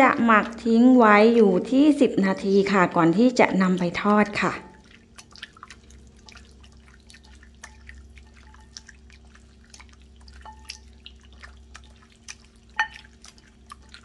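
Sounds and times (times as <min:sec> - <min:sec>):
wet squelching of raw chicken: 0:03.2 - 0:14.0.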